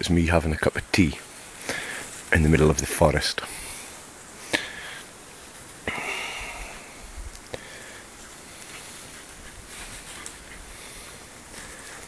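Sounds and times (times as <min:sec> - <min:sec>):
short rustle: 0:07.3 - 0:12.0.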